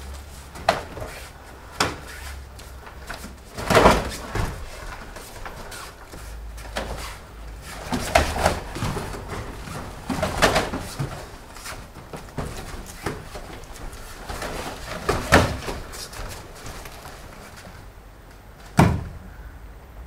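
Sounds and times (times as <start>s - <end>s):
feet stamping on foam mats: 0.0s - 17.8s
punches and kicks landing: 3.4s - 5.5s.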